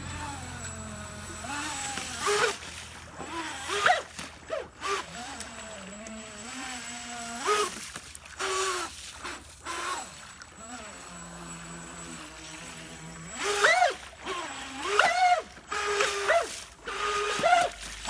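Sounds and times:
boat engine revving: 0:00.0 - 0:18.0.

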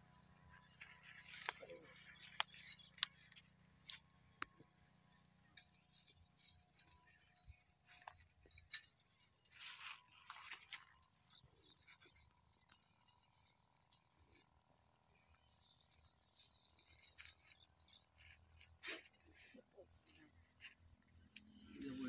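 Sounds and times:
dry leaves crackling and rustling: 0:00.8 - 0:03.3, 0:09.4 - 0:10.9.

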